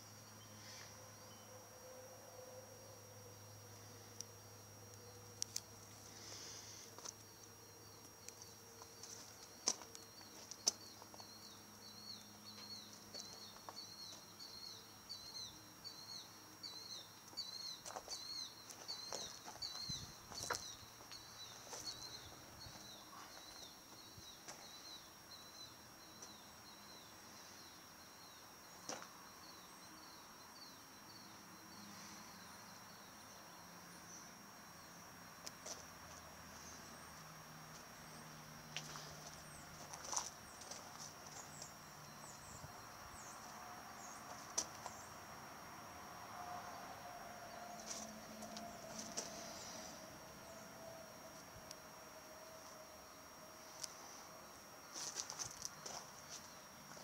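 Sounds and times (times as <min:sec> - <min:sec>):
footsteps on gravel: 0:08.8 - 0:11.3, 0:17.8 - 0:22.0, 0:38.7 - 0:41.7, 0:44.3 - 0:45.0, 0:54.9 - 0:57.0.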